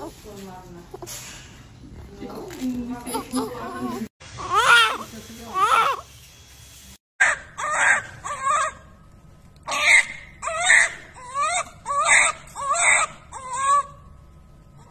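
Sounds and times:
newborn baby crying: 3.1 - 6.0, 9.7 - 14.1.

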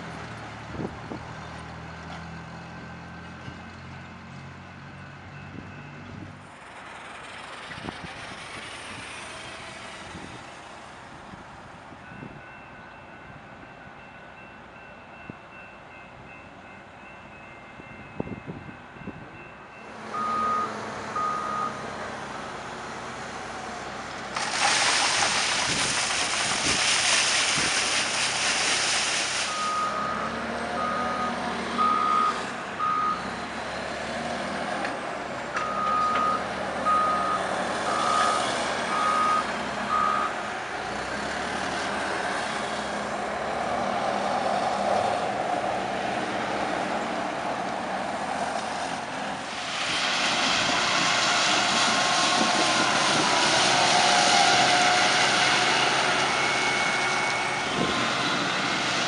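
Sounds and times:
reversing alarm beeping: 19.7 - 21.8, 29.5 - 33.3, 35.6 - 40.4.

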